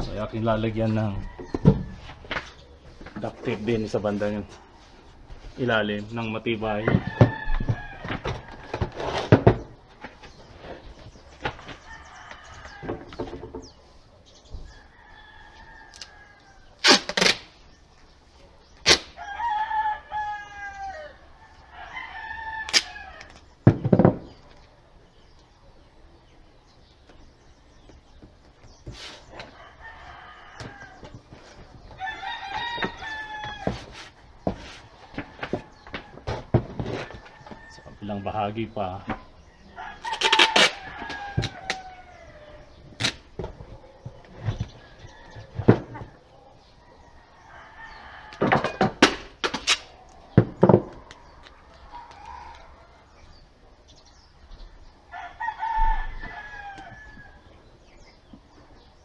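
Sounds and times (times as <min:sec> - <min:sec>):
rooster crowing: 0:06.7 - 0:09.0, 0:19.2 - 0:23.3, 0:29.4 - 0:31.1, 0:32.0 - 0:33.8, 0:39.6 - 0:42.7, 0:55.1 - 0:57.4
duct tape ripping off roll: 0:16.8 - 0:17.6, 0:18.8 - 0:19.2, 0:22.6 - 0:23.4, 0:40.0 - 0:40.8, 0:43.0 - 0:43.3, 0:49.1 - 0:49.9.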